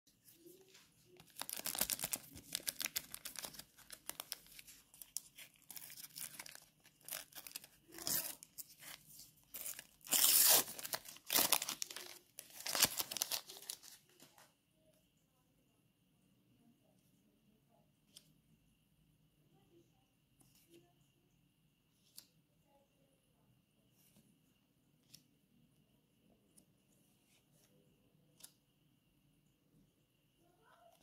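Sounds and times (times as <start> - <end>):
wrapper crinkling and tearing: 1.2 - 14.1.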